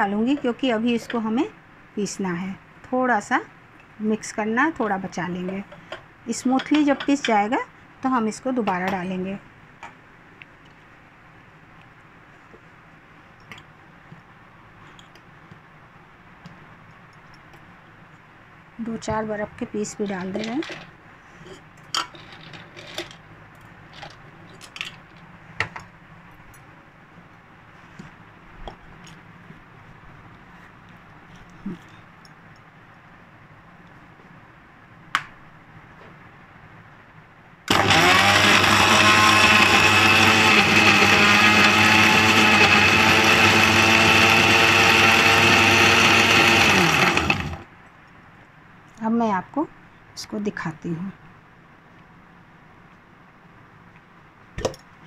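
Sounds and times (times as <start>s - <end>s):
mixer grinder motor whine: 37.7s - 47.7s.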